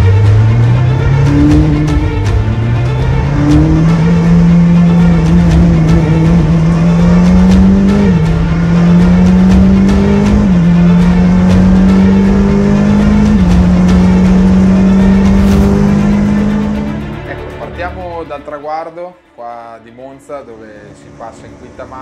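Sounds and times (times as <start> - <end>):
race car engine accelerating: 0.0 - 17.6.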